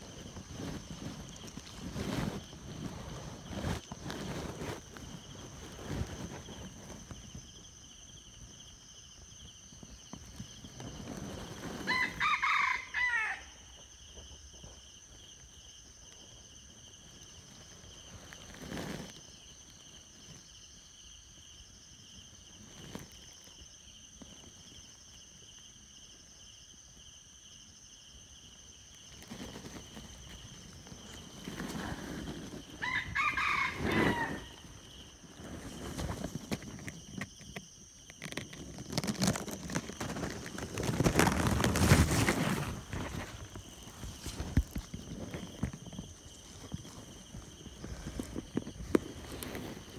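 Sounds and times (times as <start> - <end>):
rooster crowing: 11.9 - 13.8, 32.8 - 35.0.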